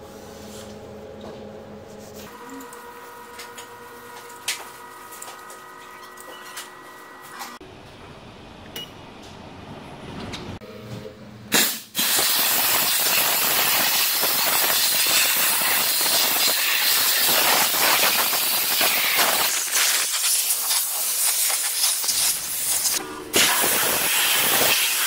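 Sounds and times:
steam hissing: 0:11.5 - 0:25.0
steam spurt: 0:11.5 - 0:25.0.

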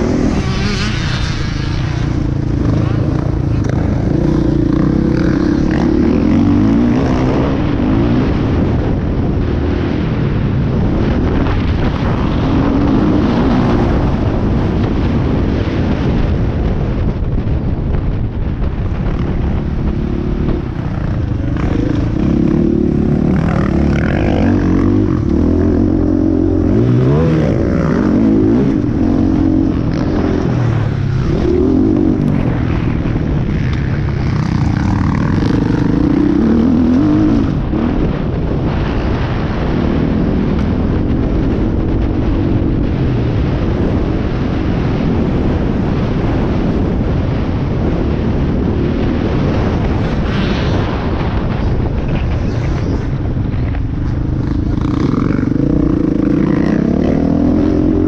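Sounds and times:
dirt bike engine revving: 0:00.0 - 0:08.9, 0:19.0 - 0:39.7, 0:54.2 - 0:58.0.

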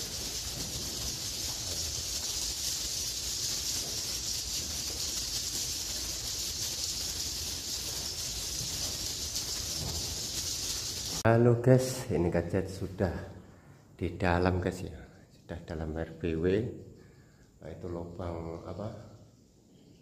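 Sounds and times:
swiftlet calls high hiss: 0:00.0 - 0:11.2.

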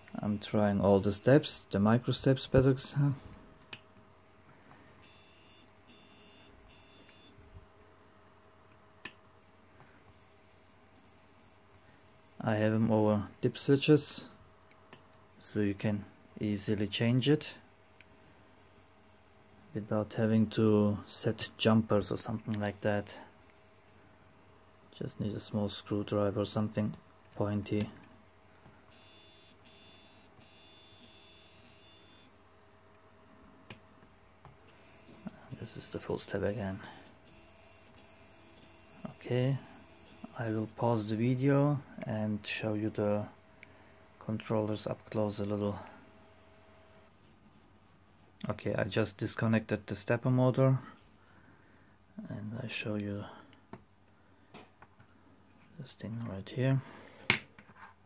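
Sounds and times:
faint steady hum: 0:00.0 - 0:58.0
stepper motor high-pitched whine: 0:10.1 - 0:14.3, 0:28.9 - 0:32.3, 0:34.7 - 0:47.1.

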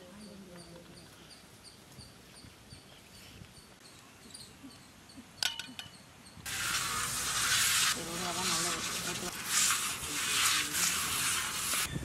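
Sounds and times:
hands rubbing clay on metal pan: 0:06.5 - 0:11.9.

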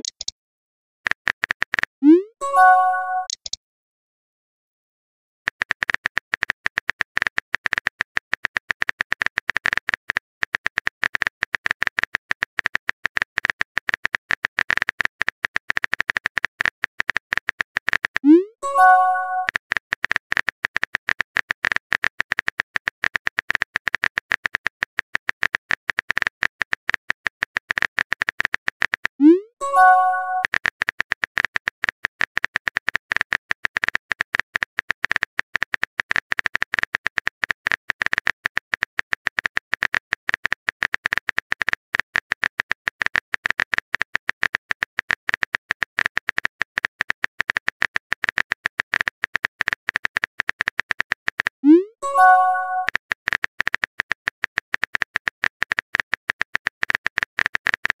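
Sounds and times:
keyboard typing clicks: 0:00.0 - 0:00.3, 0:01.1 - 0:03.6, 0:05.5 - 0:58.0
rising pop-like tone: 0:02.0 - 0:03.5, 0:18.2 - 0:19.5, 0:29.2 - 0:30.5, 0:51.6 - 0:52.9.

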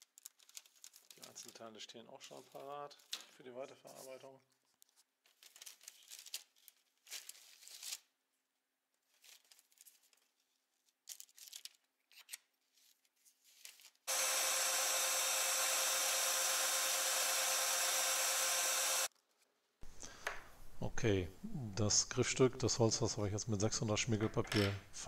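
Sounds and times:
belt sander running: 0:14.1 - 0:19.1.

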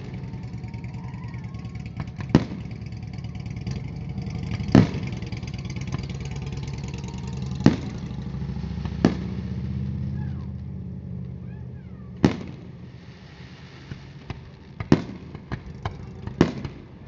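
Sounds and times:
low engine hum: 0:00.0 - 0:13.2
firework shells booming: 0:00.0 - 0:17.0.

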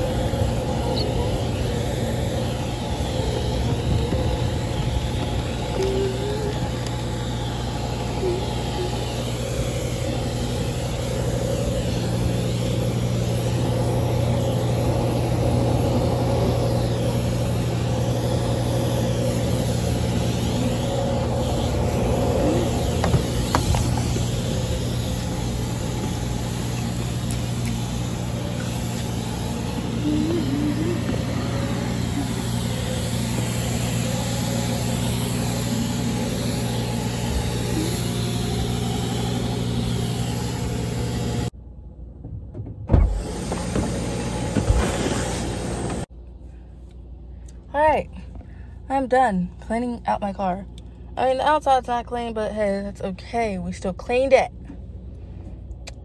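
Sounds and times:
vacuum machine humming: 0:00.0 - 0:41.6, 0:43.1 - 0:46.1.

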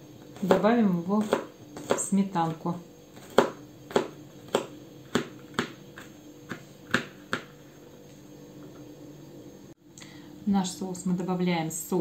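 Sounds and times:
knife chopping on plastic board: 0:00.4 - 0:02.1, 0:03.2 - 0:07.6.

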